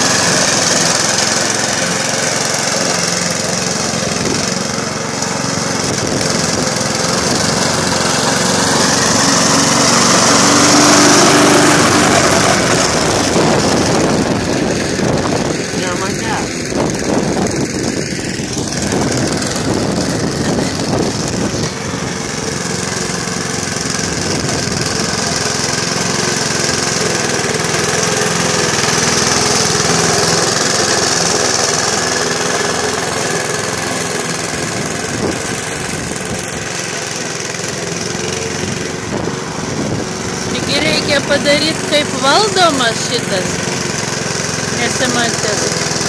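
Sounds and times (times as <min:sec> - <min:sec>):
electric lawn mower running: 0:00.0 - 0:46.0.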